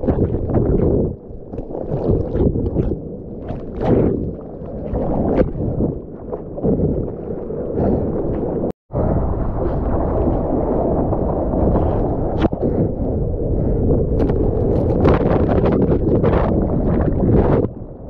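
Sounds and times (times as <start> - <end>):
seawater sloshing and splashing: 0.0 - 8.6.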